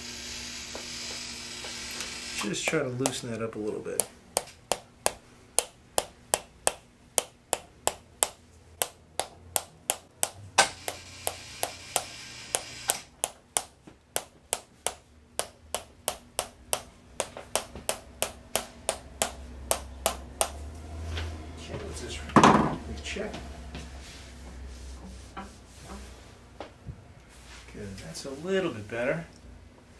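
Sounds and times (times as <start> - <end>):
hammer tapping metal instrument: 4.0 - 20.6.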